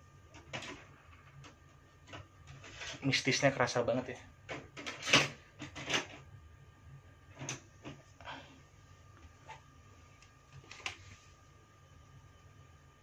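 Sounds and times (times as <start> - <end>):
book pages rustling: 10.6 - 11.4.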